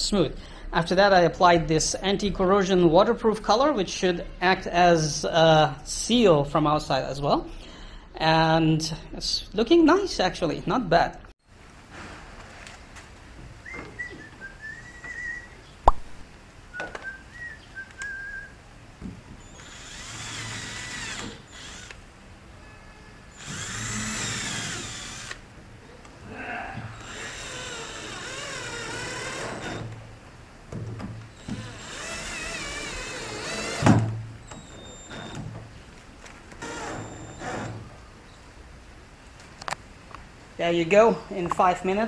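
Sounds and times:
cordless drill running into wood: 0:19.4 - 0:22.0, 0:23.3 - 0:25.4, 0:27.0 - 0:30.0, 0:31.3 - 0:35.4.

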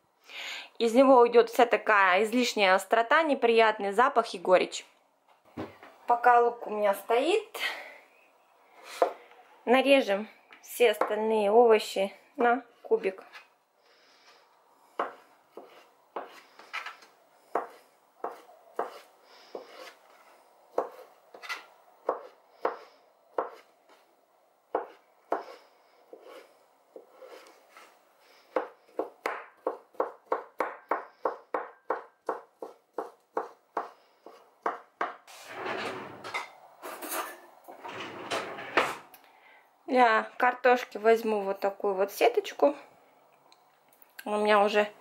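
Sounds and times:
knife chopping on plastic board: 0:15.0 - 0:16.9, 0:17.5 - 0:20.0, 0:20.7 - 0:23.6, 0:24.8 - 0:26.4, 0:28.5 - 0:35.2
rustling scrape: 0:15.6 - 0:21.7, 0:25.5 - 0:28.4, 0:35.3 - 0:39.1.

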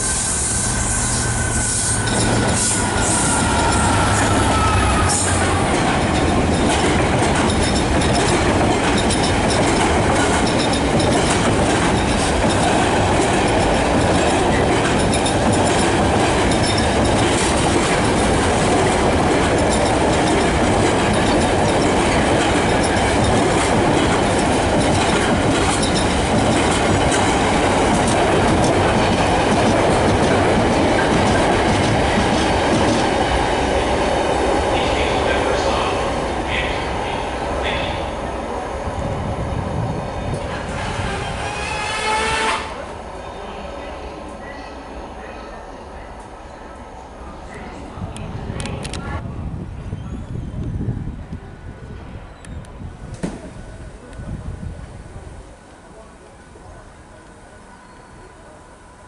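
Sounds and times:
train wheels rumbling on rails: 0:00.0 - 0:43.1, 0:47.7 - 0:57.6
wheels clicking over rail joints: 0:05.4 - 0:33.1.

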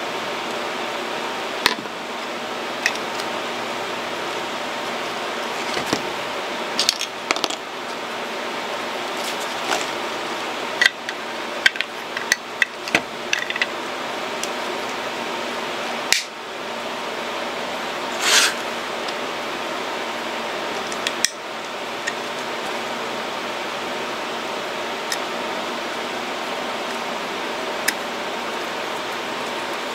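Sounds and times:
brief scrape: 0:18.1 - 0:18.6.

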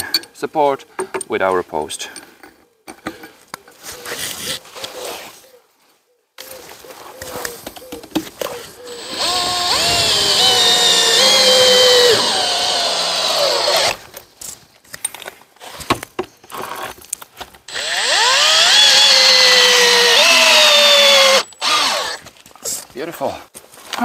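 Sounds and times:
cordless drill drilling into wood: 0:08.9 - 0:14.0, 0:17.7 - 0:22.2.

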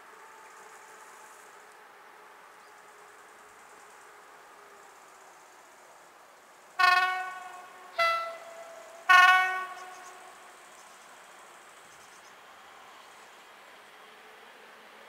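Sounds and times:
electric locomotive horn blasts: 0:06.8 - 0:10.6.

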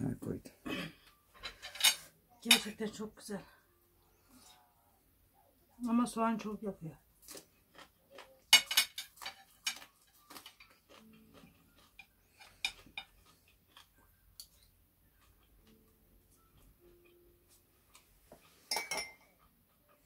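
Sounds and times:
cutlery clinking on plates: 0:01.3 - 0:02.9, 0:08.2 - 0:11.2, 0:18.4 - 0:19.4.

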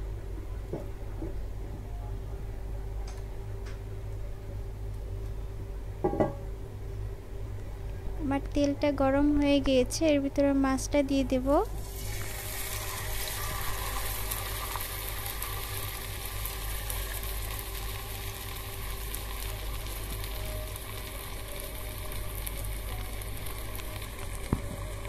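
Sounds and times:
low steady hum: 0:00.0 - 0:25.0
fish sizzling in oil: 0:11.8 - 0:25.0.

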